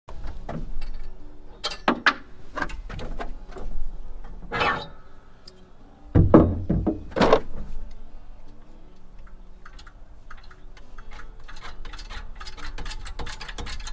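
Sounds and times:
metal hitch clanks and knocks: 0.6 - 3.2, 9.7 - 13.9
heavy deep thumps: 6.2 - 7.2
metal rattle: 9.6 - 13.9.

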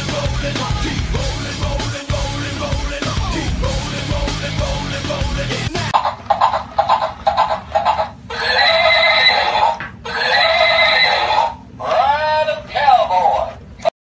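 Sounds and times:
toy electronic clicking: 6.0 - 9.6
toy whinny calls: 6.0 - 12.1.

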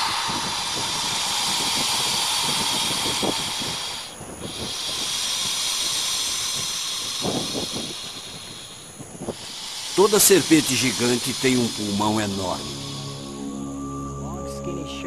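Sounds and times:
snake breathing hiss: 0.0 - 13.9.

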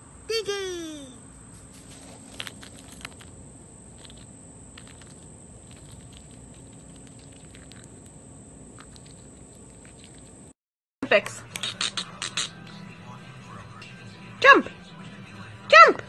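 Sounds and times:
chipmunk gnawing a nut: 1.5 - 10.5.

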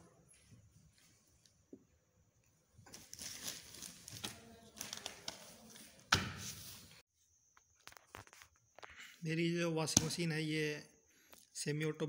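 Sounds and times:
paper pages rustling: 2.9 - 7.0.

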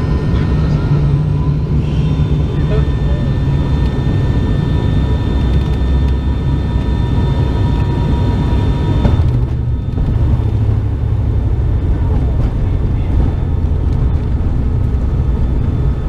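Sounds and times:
high whining tones: 0.0 - 11.9
heavy low rumble: 0.0 - 16.0
propeller engines droning: 0.0 - 16.0.

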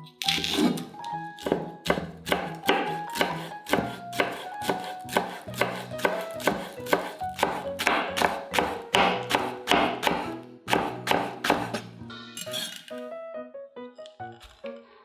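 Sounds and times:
light background music: 0.0 - 15.0
knife chopping on wooden board: 0.3 - 0.8, 1.4 - 11.9.

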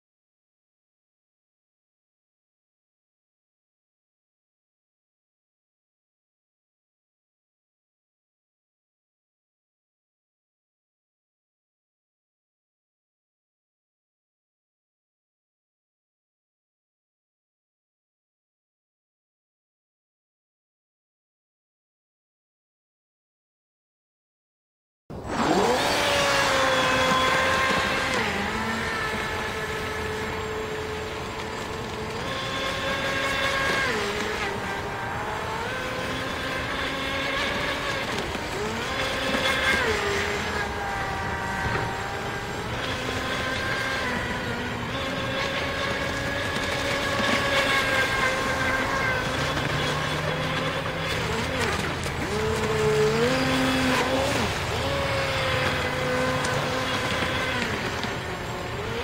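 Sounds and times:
model jet ski motor whining: 25.1 - 59.0.

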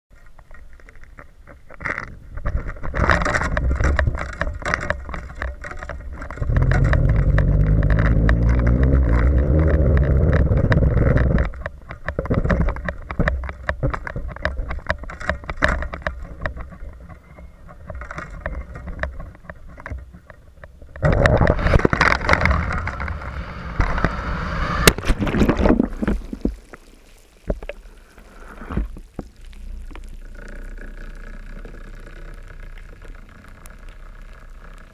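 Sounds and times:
water splashing and gurgling: 0.6 - 34.9
wind rushing: 22.4 - 25.3.

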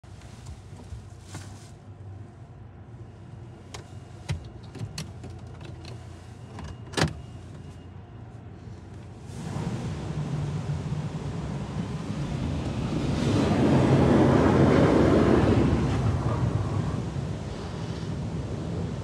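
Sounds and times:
clicks and knocks in car cabin: 3.7 - 7.2.

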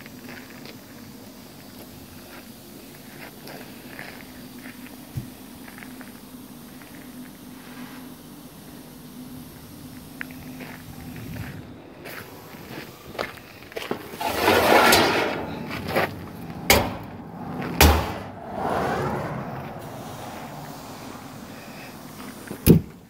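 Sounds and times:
metal clanks: 14.1 - 16.0, 16.7 - 17.2
metal pans scraping: 14.1 - 16.0.

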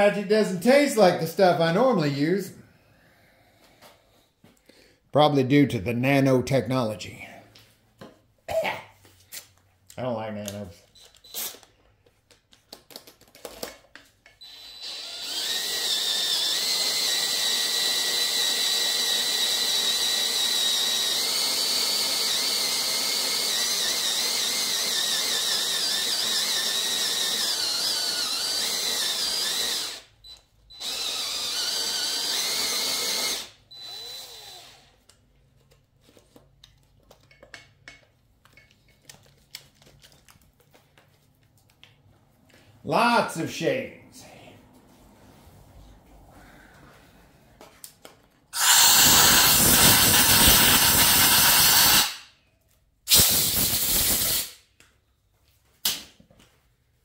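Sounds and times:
cordless drill whining: 14.4 - 35.1, 48.6 - 52.2.

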